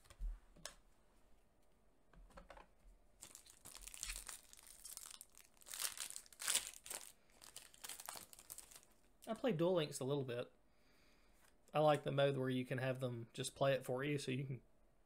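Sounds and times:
foil pack tearing and crinkling: 3.2 - 8.9.

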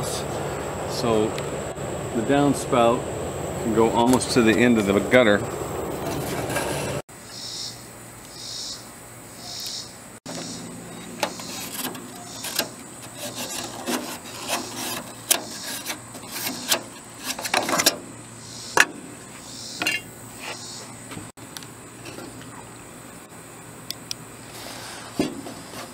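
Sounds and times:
metal flange clicking and scraping: 5.9 - 7.0, 10.3 - 19.1, 19.7 - 20.7
pencil scratching on metal: 6.0 - 7.0, 10.3 - 18.0.

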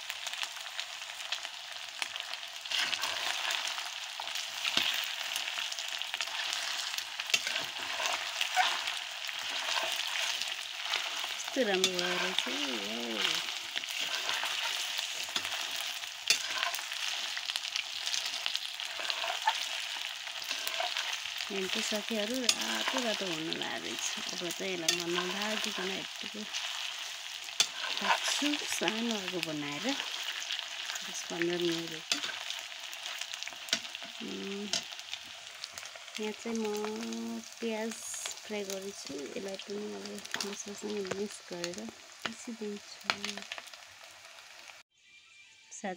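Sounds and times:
meat sizzling in oil: 0.0 - 44.9
metal spatula scraping pan: 2.7 - 5.4, 6.2 - 34.9.

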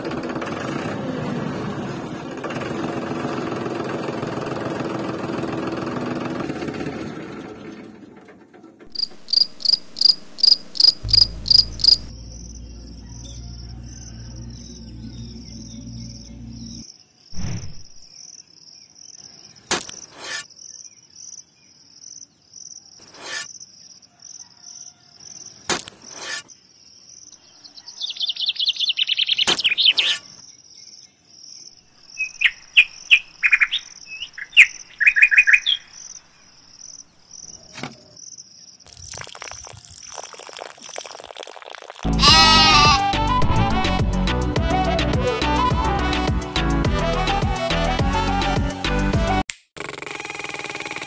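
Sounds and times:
insects trilling: 8.9 - 17.4, 18.0 - 43.0
birds chirping: 8.9 - 19.7, 26.6 - 41.1
low hum: 9.0 - 16.8.

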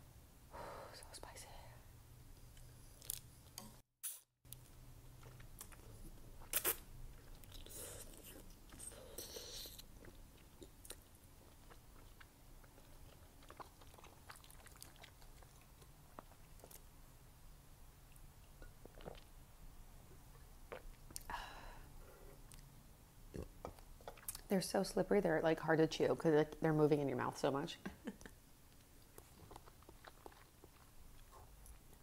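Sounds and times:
chewing and slurping noodles: 5.0 - 16.8, 29.1 - 32.0.

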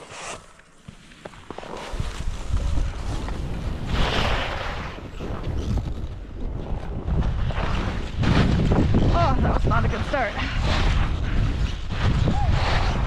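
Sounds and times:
skis scraping snow: 0.0 - 6.3
wind buffeting microphone: 4.9 - 13.0.

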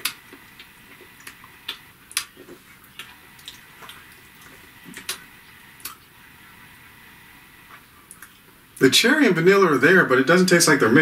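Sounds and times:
wet lip and tongue clicks: 0.0 - 6.1, 7.7 - 8.5.

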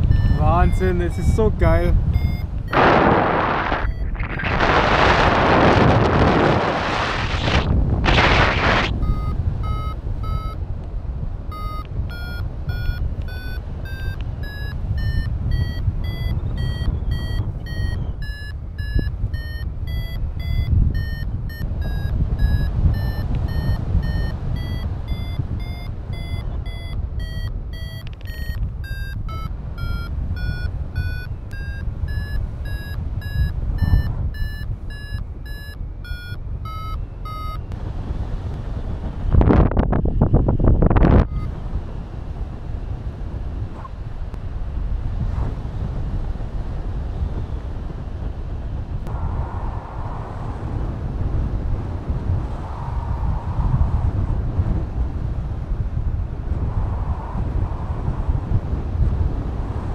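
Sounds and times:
variometer beeping short tones: 0.0 - 4.6, 8.3 - 10.6, 11.5 - 37.8, 41.2 - 41.5
wind on microphone: 0.0 - 59.9.

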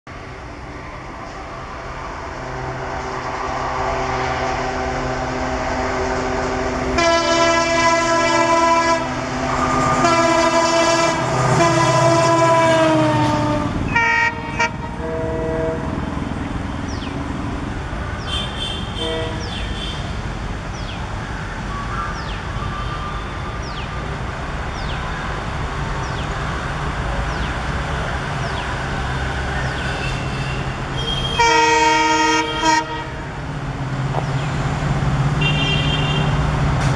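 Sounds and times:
diesel locomotive engine running: 0.1 - 36.9
train and coaches rumbling: 0.1 - 36.9
multi-tone train horn: 6.9 - 16.0, 18.5 - 20.1, 30.0 - 33.4, 35.4 - 36.4.

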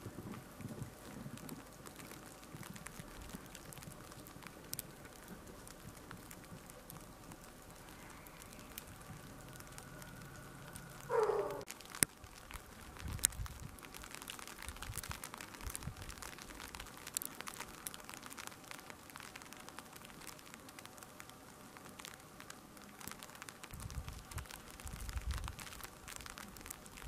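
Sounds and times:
light ticks and crackles: 0.0 - 27.0
soft steady hiss: 0.0 - 27.0.

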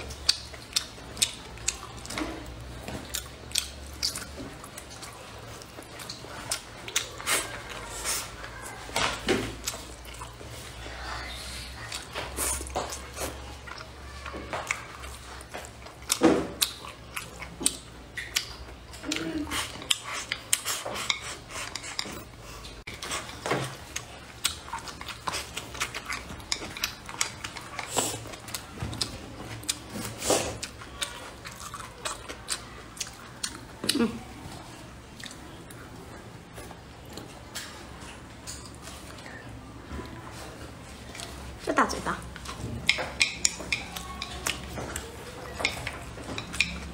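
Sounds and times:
mouth chewing: 0.0 - 8.9, 9.5 - 46.9
chopsticks clicking on bowl: 42.4 - 46.9.

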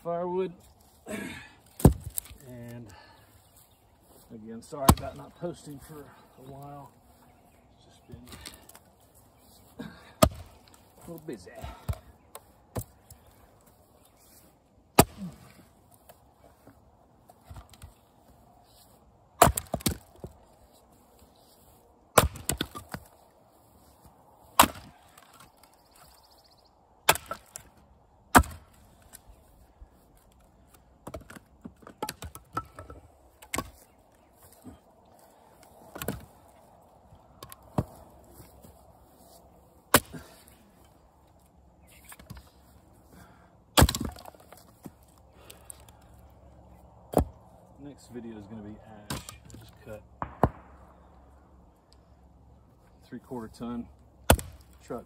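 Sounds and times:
axe chopping wood: 1.6 - 2.4, 4.8 - 5.2, 10.1 - 10.8, 11.6 - 13.0, 14.9 - 15.7, 19.4 - 20.4, 22.1 - 23.2, 24.5 - 25.6, 27.0 - 28.8, 31.0 - 33.8, 35.9 - 36.3, 37.4 - 38.1, 39.9 - 40.6, 43.7 - 45.6, 47.1 - 47.4, 49.0 - 50.9, 54.2 - 54.8.

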